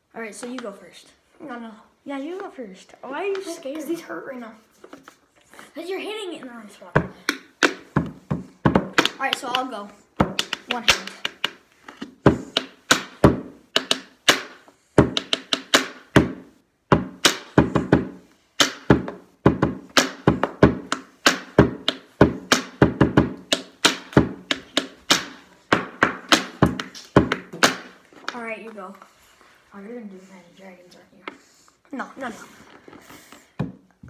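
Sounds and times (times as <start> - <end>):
pen drumming rhythmic taps: 7.0 - 28.4.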